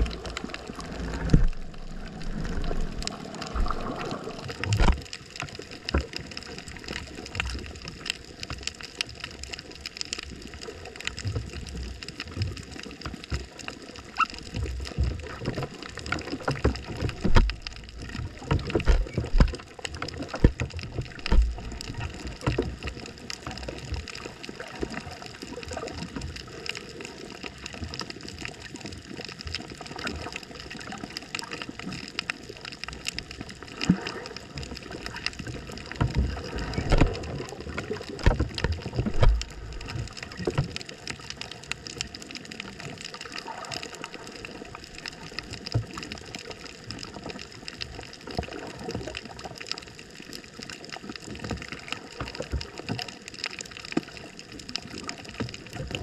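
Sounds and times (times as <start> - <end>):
scattered underwater clicks: 0.0 - 56.0
underwater gurgling and sloshing: 0.0 - 56.0.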